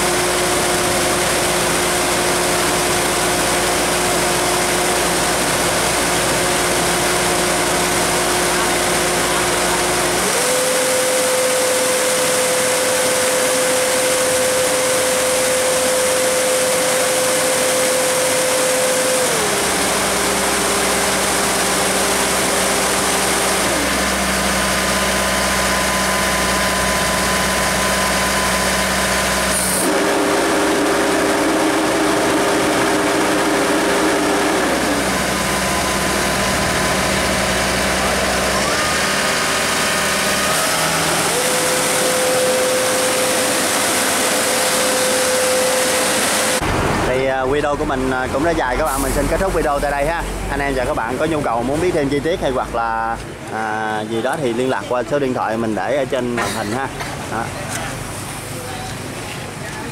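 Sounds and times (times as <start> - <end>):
combine harvester running: 0.0 - 59.9
cooling fan hum: 0.0 - 59.9.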